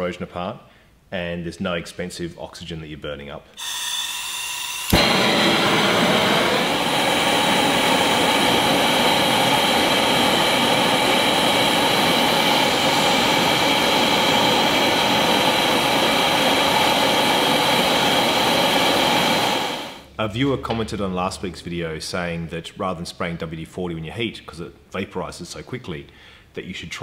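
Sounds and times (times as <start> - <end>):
gas torch flame rushing: 3.6 - 20.1.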